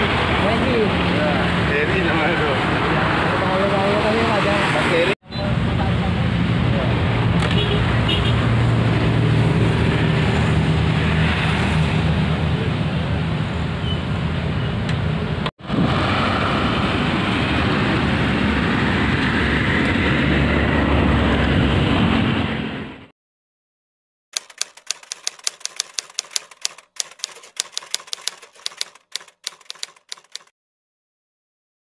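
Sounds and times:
typewriter keystrokes clicking: 24.4s - 30.5s.

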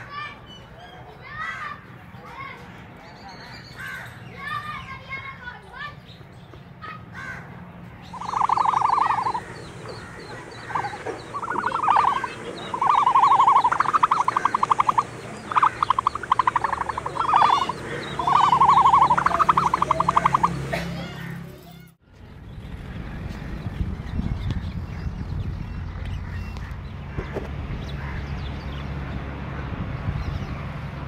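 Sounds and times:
animal rattling trill calls: 8.1s - 20.6s.

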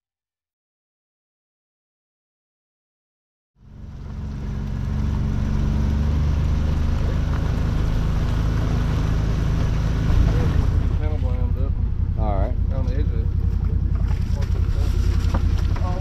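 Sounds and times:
boat motor running: 3.6s - 16.0s.

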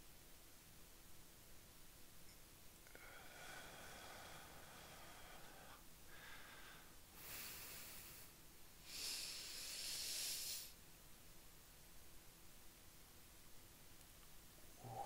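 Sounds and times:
man breathing heavily: 2.9s - 10.7s, 14.8s - 15.0s.

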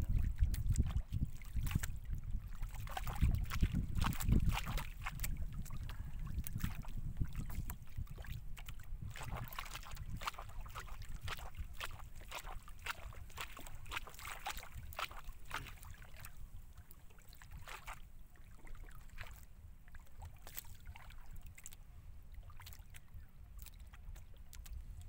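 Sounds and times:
low wind rumble: 0.0s - 10.2s
water slapping against boat hull: 0.0s - 21.8s, 22.4s - 25.0s.

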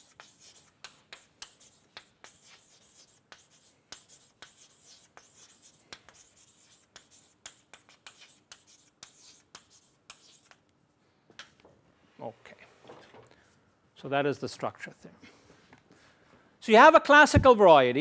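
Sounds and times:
chalk scratching on blackboard: 0.0s - 10.7s.

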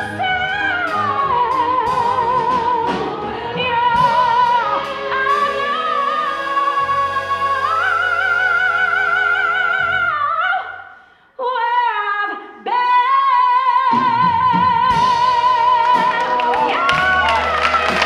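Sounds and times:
pit orchestra playing show tune: 0.0s - 10.4s, 14.2s - 18.0s
woman singing lead vocal: 0.0s - 18.0s.

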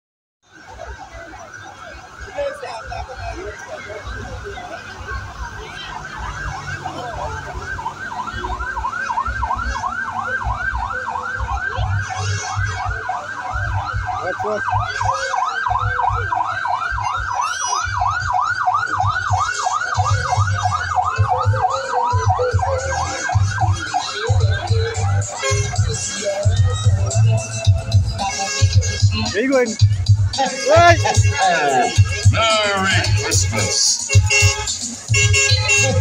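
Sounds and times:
siren yelping: 5.5s - 29.4s, 30.4s - 34.1s.

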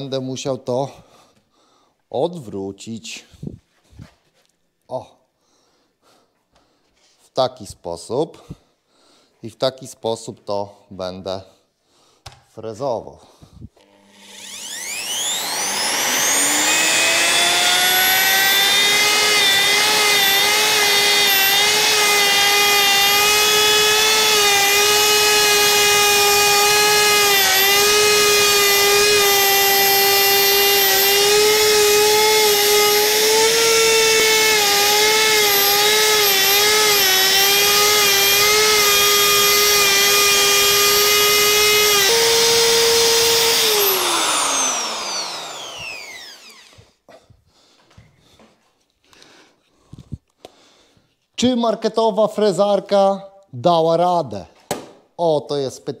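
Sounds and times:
electric router whining: 13.8s - 46.9s.

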